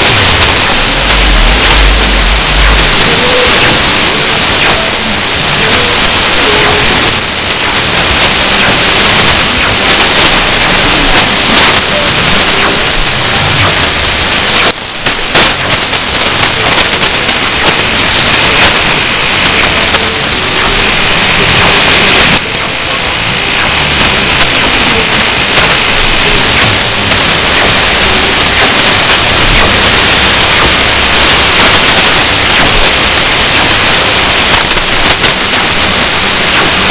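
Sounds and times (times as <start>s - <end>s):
faint radio station: 0.0s - 36.9s
radio static hiss: 0.0s - 36.9s.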